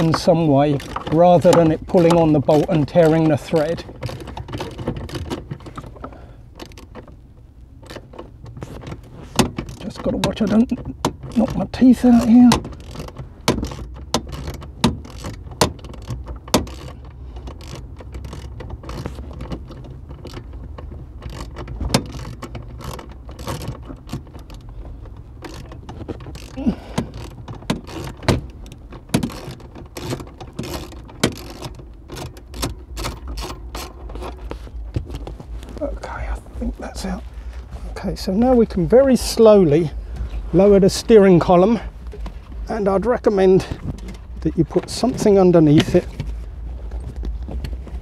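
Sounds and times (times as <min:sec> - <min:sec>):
low steady hum: 0:00.0 - 0:48.0
ratchet wrench clicking: 0:12.1 - 0:20.3.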